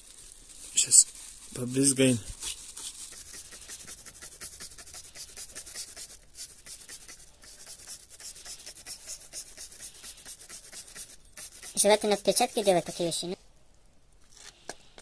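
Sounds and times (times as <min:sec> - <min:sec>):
spray bottle hissing spritzes: 0:03.1 - 0:13.4.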